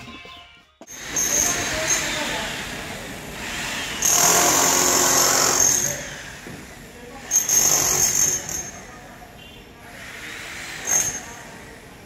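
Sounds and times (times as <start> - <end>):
power tool grinding: 0.9 - 6.3.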